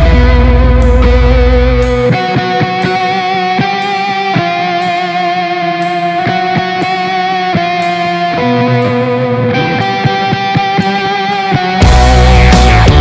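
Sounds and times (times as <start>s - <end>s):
electric guitar lead notes: 0.0s - 13.0s
instrumental rock music: 0.0s - 13.0s
drum hits: 11.8s - 13.0s.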